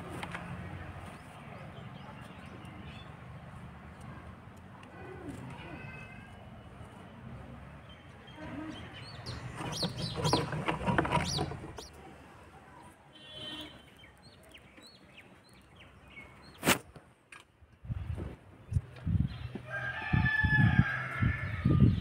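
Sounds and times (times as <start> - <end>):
small birds chirping: 7.8 - 12.0, 13.6 - 16.6
chickens clucking: 9.3 - 12.0.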